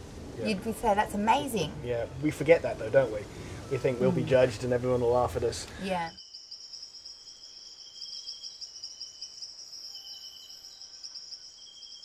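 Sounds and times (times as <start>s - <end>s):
high-pitched insect trilling: 5.8s - 12.0s
lower insect trill: 5.8s - 12.0s.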